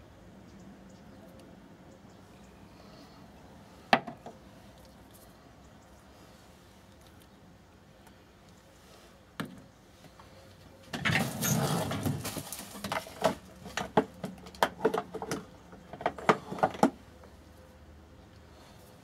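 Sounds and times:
containers clattering and rustling: 10.9s - 17.0s.

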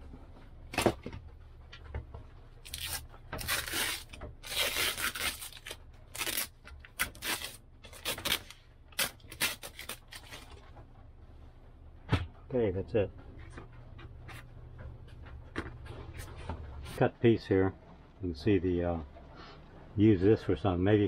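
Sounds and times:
masking tape ripping: 2.7s - 10.4s.

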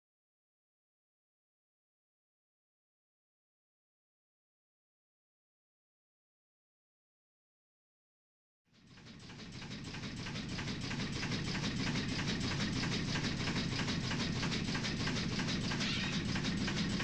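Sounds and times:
steady low hum: 8.8s - 17.0s
steam engine clatter: 8.8s - 17.0s.

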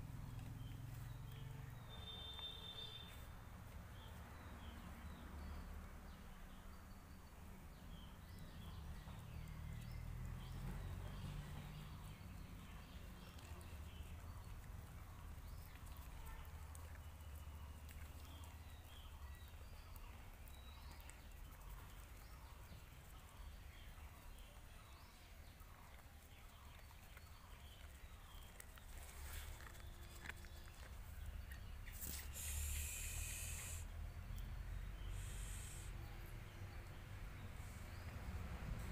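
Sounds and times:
hissing rustle: 31.8s - 34.0s, 35.0s - 36.0s.

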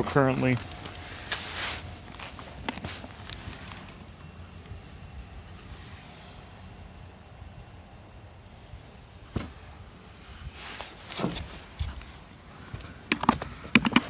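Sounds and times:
low steady hiss: 0.0s - 13.8s
short rustles: 0.5s - 4.0s, 10.3s - 12.9s.

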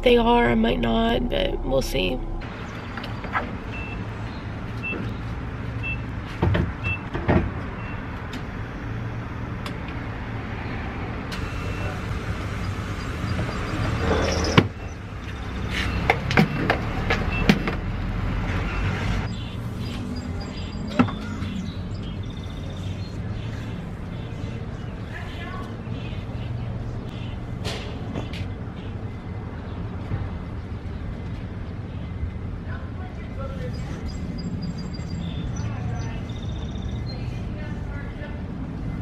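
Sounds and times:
low hum of engines: 0.0s - 39.0s
fuel pump beeps: 3.7s - 4.1s, 4.8s - 5.2s, 5.8s - 6.1s, 6.8s - 7.1s, 7.8s - 8.1s, 11.4s - 12.0s, 15.8s - 17.6s.

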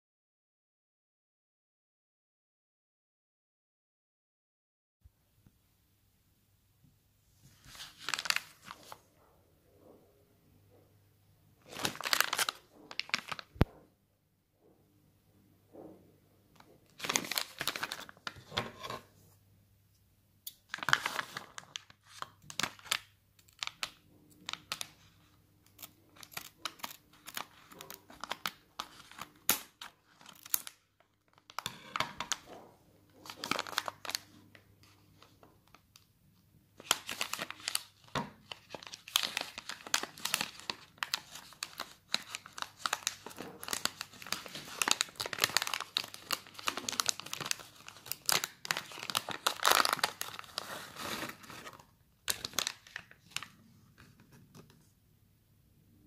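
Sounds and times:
snack pouch crinkling and tearing: 11.7s - 13.6s, 25.7s - 32.4s, 36.8s - 53.5s.

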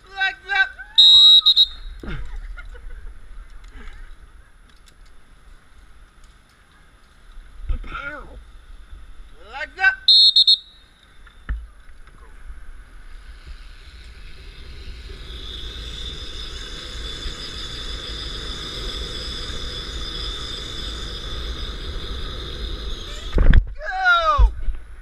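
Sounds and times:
wind rumble on microphone: 11.5s - 25.0s
zipline pulleys whirring on cable: 13.0s - 23.6s.

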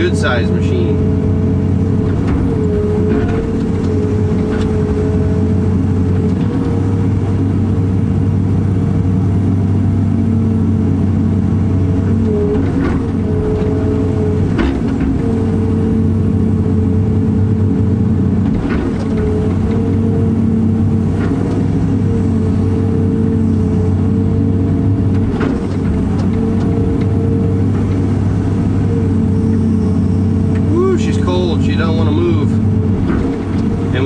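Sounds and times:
excavator engine and hydraulics: 0.0s - 34.0s.

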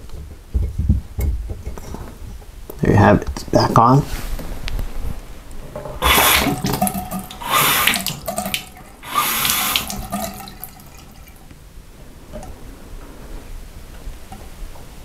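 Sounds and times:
faucet water running into sink: 6.0s - 11.4s.

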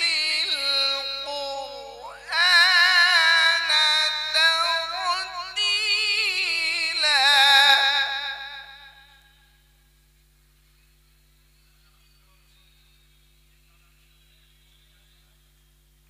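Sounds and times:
man reciting melodically: 0.0s - 9.0s.

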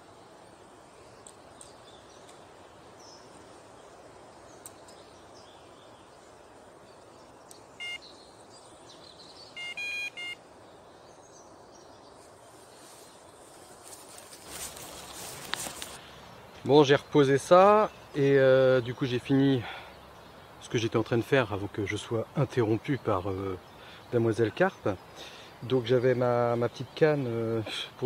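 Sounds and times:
electronic bite alarm beeping: 7.8s - 8.0s, 9.6s - 10.4s.

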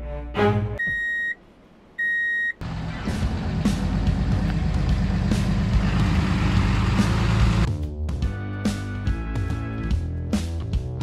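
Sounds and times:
reversing alarm beeps: 0.8s - 1.4s, 2.0s - 2.6s
truck rumbling on gravel road: 2.6s - 7.7s.

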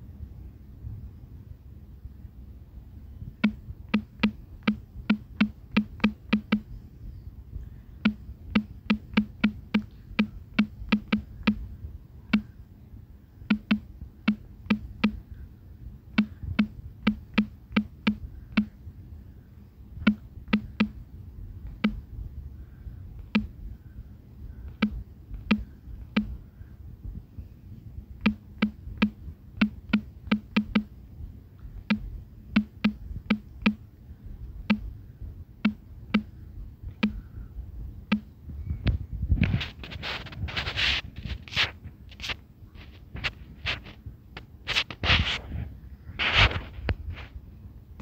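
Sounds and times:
faint low hum: 0.0s - 48.0s
phone keyboard key clicks: 3.4s - 6.7s, 8.0s - 11.6s, 13.5s - 15.2s, 16.2s - 18.7s, 20.0s - 21.0s, 21.7s - 22.0s, 24.7s - 26.3s, 28.2s - 30.9s, 31.9s - 33.8s, 37.0s - 37.2s.

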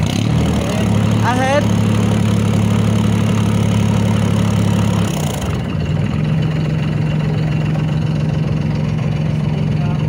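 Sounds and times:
boat diesel engine running: 0.0s - 10.0s.

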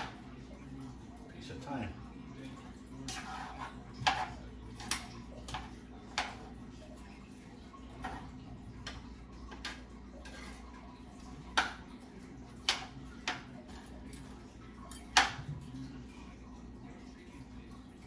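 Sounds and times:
cookware clicks and taps: 0.0s - 0.3s, 3.0s - 6.6s, 7.8s - 15.8s.

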